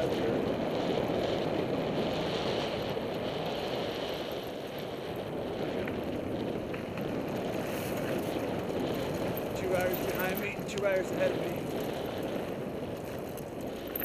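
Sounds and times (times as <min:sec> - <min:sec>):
faint bike ticks: 0:00.0 - 0:14.0
wind on microphone: 0:00.0 - 0:14.0
tyres rolling on dirt: 0:03.5 - 0:14.0.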